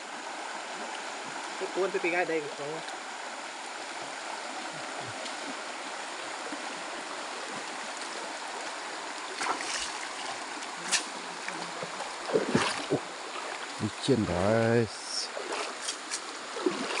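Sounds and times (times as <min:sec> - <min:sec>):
stream water running: 0:00.0 - 0:17.0
sharp water splashes: 0:09.3 - 0:13.8, 0:15.0 - 0:17.0
water dripping from net: 0:15.4 - 0:17.0.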